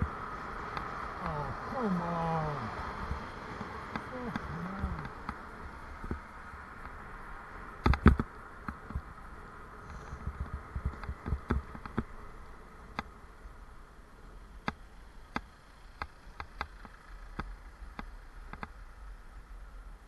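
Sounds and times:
bicycle rattling over road: 0.0s - 20.0s
sharp clicks and ticks: 3.5s - 5.4s, 7.8s - 9.1s, 14.6s - 18.8s.

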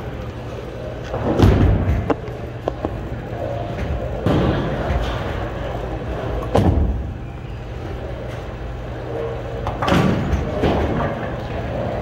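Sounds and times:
bowling ball rolling rumble: 0.0s - 7.2s.

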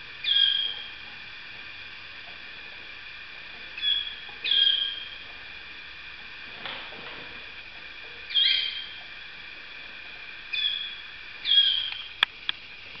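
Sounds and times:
canaries singing: 0.1s - 1.2s, 3.6s - 5.3s, 8.2s - 9.2s, 10.0s - 12.2s.

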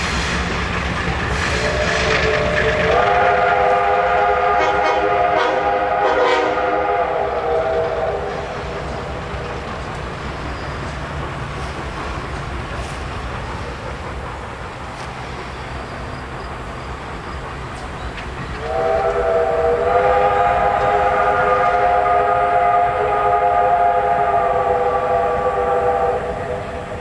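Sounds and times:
low rumble of train: 0.0s - 27.0s
steam locomotive chime whistle: 1.3s - 11.0s, 18.5s - 27.0s.

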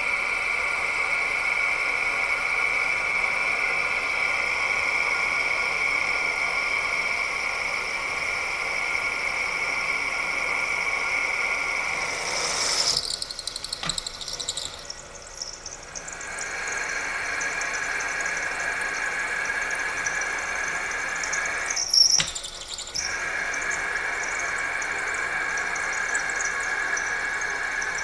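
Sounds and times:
drill bit squealing in metal: 2.6s - 6.4s, 7.5s - 28.0s
click: 2.7s - 3.6s, 10.2s - 14.9s, 21.7s - 23.2s.

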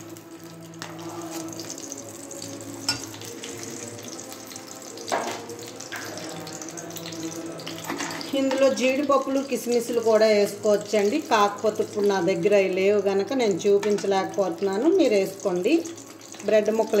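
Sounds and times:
ghee sizzling in pan: 0.0s - 17.0s
spoon tapping and scraping pan: 2.9s - 3.2s, 13.7s - 14.2s.

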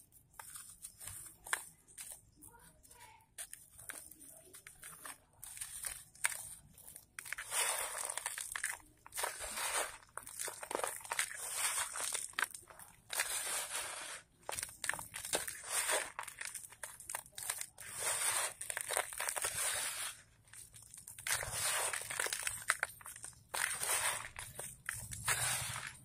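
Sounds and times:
sand grains trickling: 9.2s - 12.3s, 17.5s - 20.3s, 21.3s - 22.8s, 23.5s - 26.0s
sand crumbled in hands: 20.8s - 26.0s.

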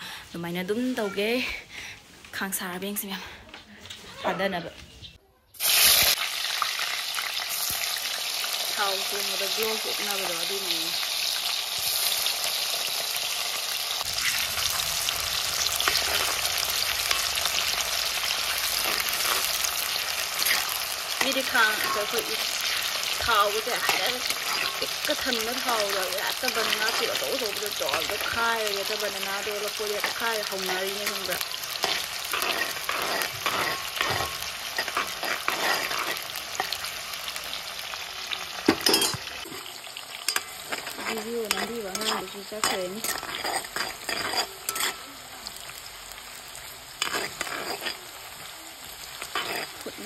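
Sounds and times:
oil sizzling and crackling: 5.5s - 50.0s
metal ladle scraping a wok: 13.3s - 36.8s, 38.8s - 39.7s, 40.3s - 45.2s, 47.0s - 48.3s, 49.2s - 50.0s
metal spoon stirring: 15.4s - 36.8s, 38.8s - 45.1s, 47.0s - 48.3s, 49.2s - 50.0s.

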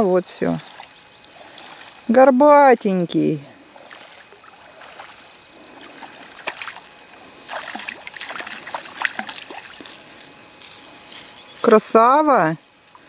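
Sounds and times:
fish splashing in water: 3.7s - 11.8s.

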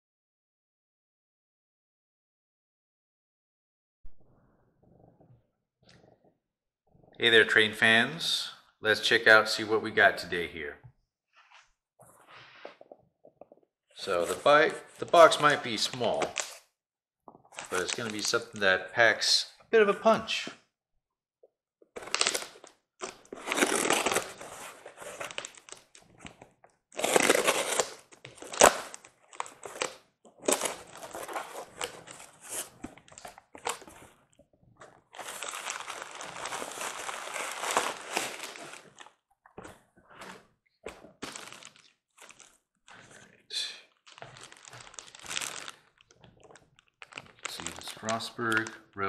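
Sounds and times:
plastic bag crinkling: 17.5s - 18.6s, 34.8s - 39.2s, 41.1s - 43.3s, 43.9s - 48.8s
cardboard box ripping and scraping: 23.4s - 25.6s, 27.0s - 28.6s, 35.2s - 38.8s.

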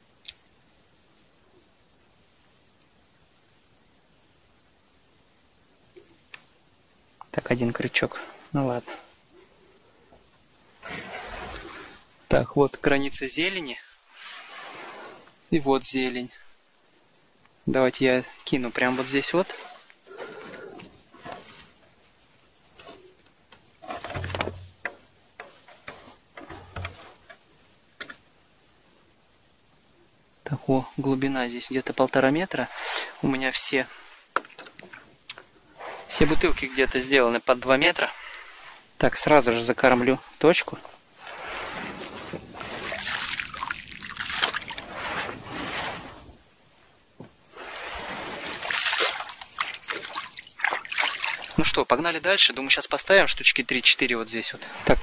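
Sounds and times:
dull thumps: 23.5s - 27.4s
hands squelching wet grain: 32.2s - 34.2s, 41.2s - 46.2s, 47.5s - 51.7s.

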